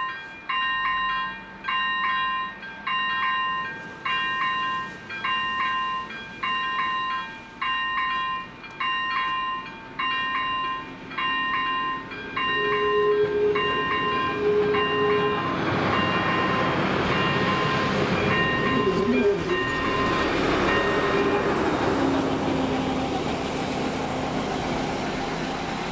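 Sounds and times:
level crossing warning bells: 0.0 - 24.6
train engine and wheel noise: 0.0 - 25.9
train horn blasts: 12.4 - 21.8.

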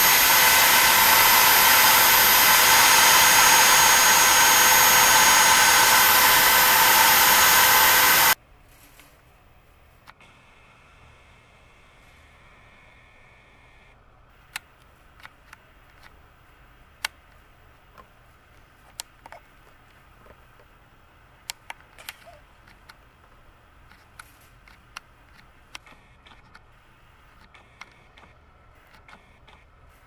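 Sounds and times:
camera zoom motor whine: 0.0 - 8.4.

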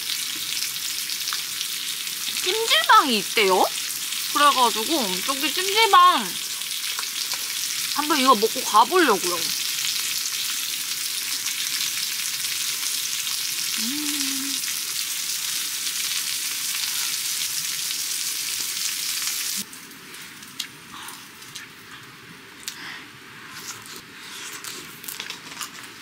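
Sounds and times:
food sizzling on a grill pan: 0.0 - 20.2
person humming: 13.8 - 14.6.

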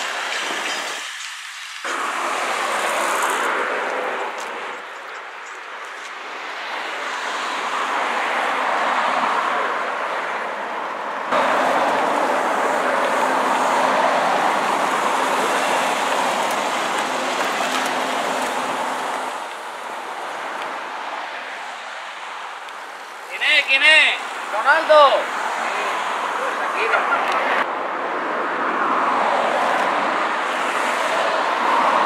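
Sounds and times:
cars passing: 0.0 - 32.0.

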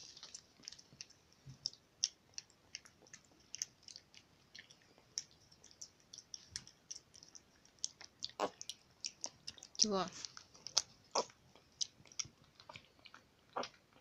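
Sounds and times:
pig smacking while eating: 0.0 - 14.0.

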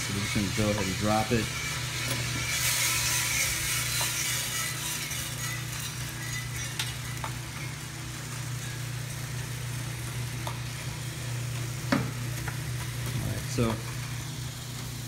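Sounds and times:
coffee beans rustling in tray: 0.0 - 9.7
roaster motor hum: 0.0 - 15.0.

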